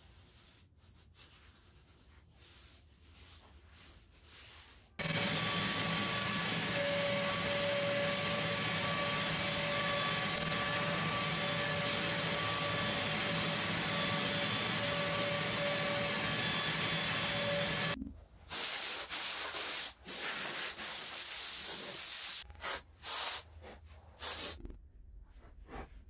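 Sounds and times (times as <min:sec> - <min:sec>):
shop vacuum whining: 0:05.0 - 0:18.0.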